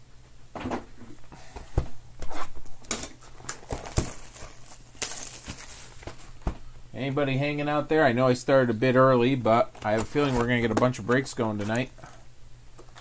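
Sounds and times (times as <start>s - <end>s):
shrink-wrap crinkling: 3.2s - 6.4s, 9.6s - 13.0s.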